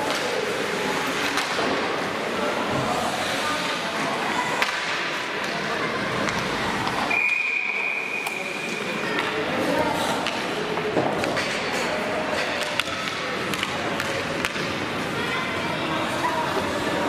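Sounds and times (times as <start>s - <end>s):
hockey sticks and puck knocking: 1.2s - 1.8s, 4.6s - 5.6s, 10.2s - 14.8s.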